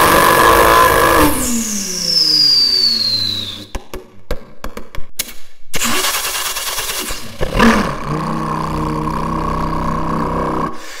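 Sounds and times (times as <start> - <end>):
man imitating engine start: 5.8 - 11.0.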